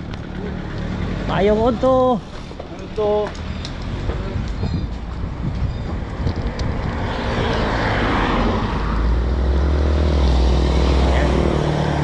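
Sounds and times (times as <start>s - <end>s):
motor vehicle passing: 0.0s - 12.0s
wind buffeting the microphone: 3.8s - 9.1s.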